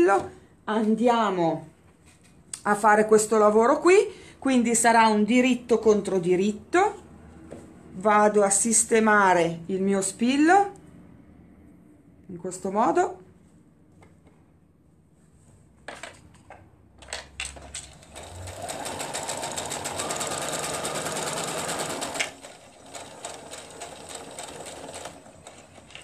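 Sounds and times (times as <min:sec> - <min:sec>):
sewing machine clicks: 0:17.5 - 0:26.0
sewing machine stitching: 0:17.6 - 0:26.0.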